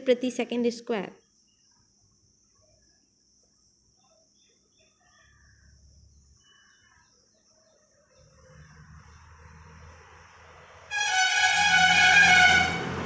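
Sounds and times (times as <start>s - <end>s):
distant bird chirps: 1.1s - 11.2s.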